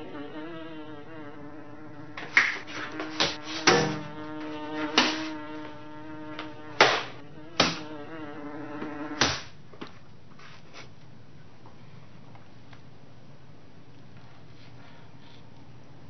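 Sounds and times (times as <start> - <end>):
housefly buzzing: 0.0 - 9.5
sharp swats: 2.2 - 4.1, 4.9 - 5.4, 6.8 - 7.9, 9.2 - 9.6.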